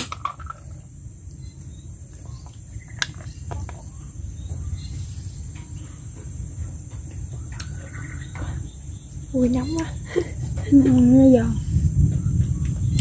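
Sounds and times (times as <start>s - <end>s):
high insect drone: 0.0s - 13.0s.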